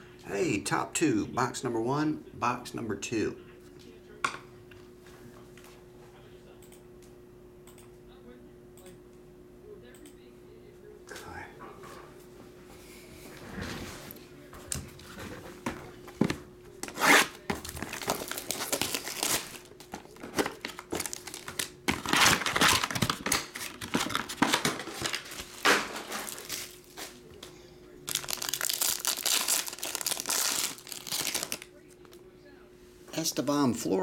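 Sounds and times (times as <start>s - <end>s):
foil wrapper crinkling and tearing: 16.9s - 27.0s, 28.1s - 31.7s.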